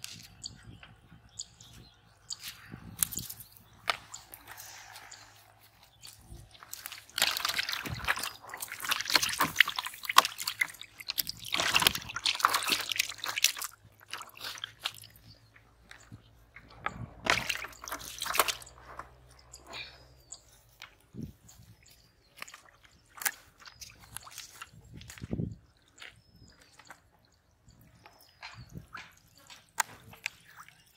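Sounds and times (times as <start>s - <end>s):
water sloshing and splashing: 3.0s - 16.0s, 16.8s - 19.9s, 20.6s - 26.2s.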